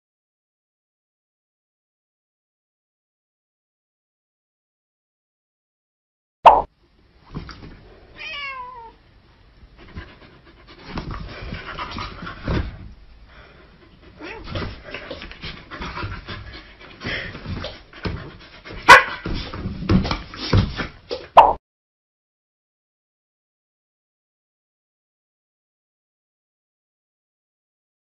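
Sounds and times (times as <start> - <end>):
dog panting: 9.7 - 19.6
scuffling and rustling bedding: 10.7 - 13.0, 13.9 - 21.1.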